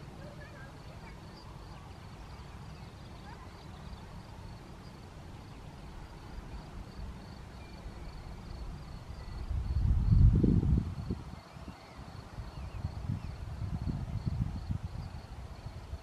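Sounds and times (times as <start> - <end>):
cricket chirping: 0.2 - 16.0
wind buffeting microphone: 6.4 - 16.0.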